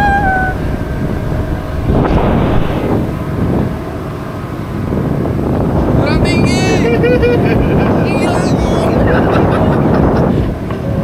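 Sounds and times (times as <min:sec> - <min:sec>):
steady low rumble: 0:00.0 - 0:06.0
wind buffeting microphone: 0:00.0 - 0:11.0.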